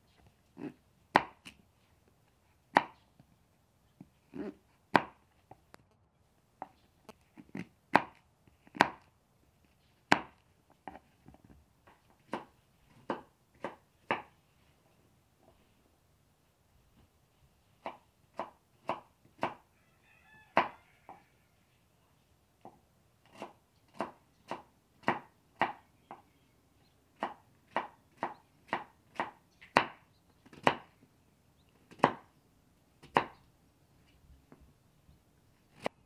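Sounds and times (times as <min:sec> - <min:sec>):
knife chopping on wooden board: 0:01.1 - 0:01.5, 0:05.0 - 0:05.2, 0:07.9 - 0:09.1, 0:10.1 - 0:11.0, 0:17.8 - 0:19.6, 0:23.3 - 0:25.8, 0:27.2 - 0:30.9, 0:31.9 - 0:32.3, 0:33.0 - 0:33.4.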